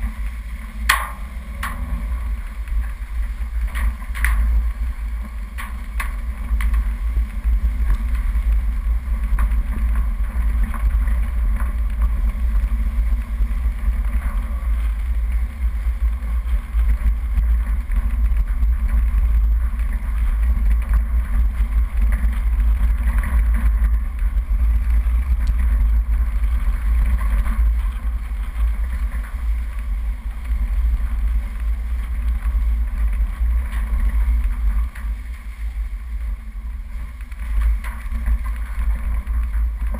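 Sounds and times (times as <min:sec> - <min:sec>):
off-road vehicle engine rumble: 0:00.0 - 0:39.9.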